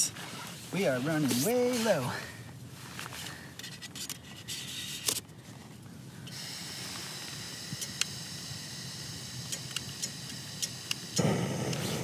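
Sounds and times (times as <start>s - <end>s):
gas stove burner hissing: 6.3s - 12.0s.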